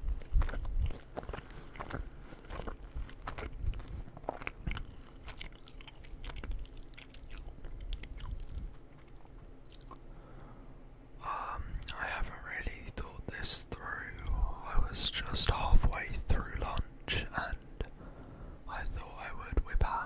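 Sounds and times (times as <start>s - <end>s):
person chewing crunchy food: 0.0s - 10.5s.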